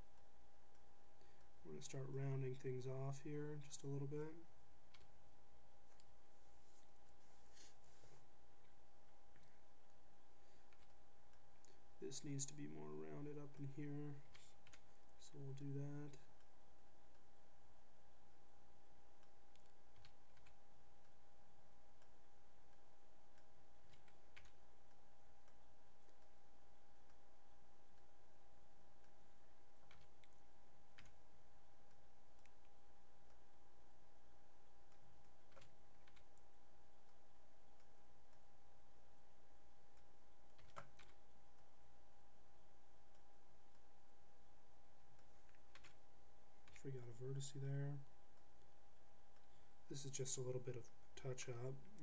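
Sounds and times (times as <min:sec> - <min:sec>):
faint steady hum: 0:00.0 - 0:52.0
mouse and keyboard clicks: 0:40.5 - 0:41.7.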